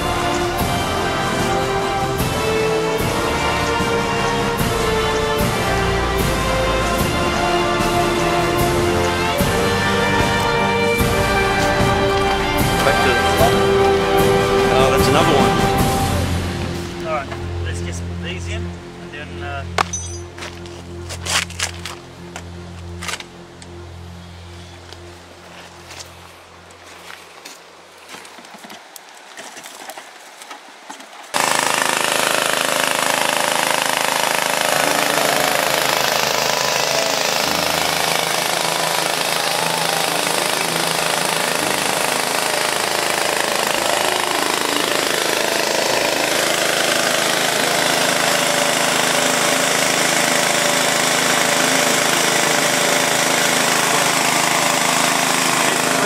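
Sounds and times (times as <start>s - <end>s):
petrol water pump running: 0.0s - 17.6s, 31.4s - 56.0s
water rushing: 26.1s - 56.0s.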